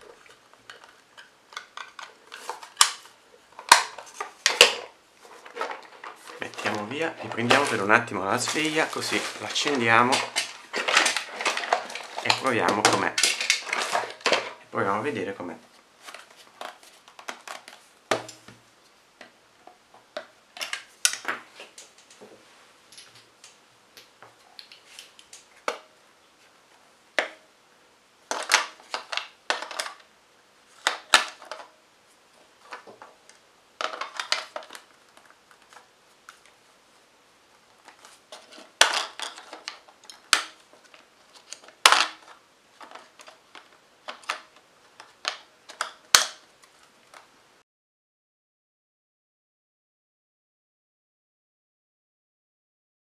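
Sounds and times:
plastic clicks and clatters of batteries: 0.3 - 14.6, 28.3 - 30.1, 30.8 - 31.7, 32.6 - 36.6, 37.8 - 47.3.

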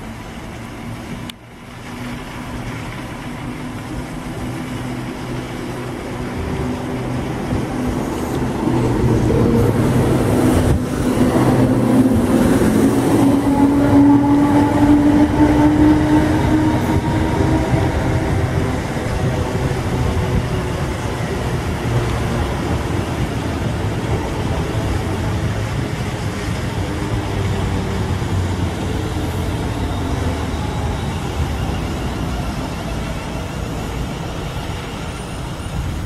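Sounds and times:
electric train passing: 0.0 - 36.0
train drawing into platform: 0.0 - 36.0.

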